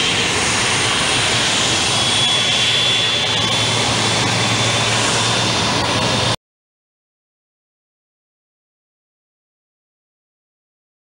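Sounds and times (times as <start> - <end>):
jet engine running: 0.0 - 6.4.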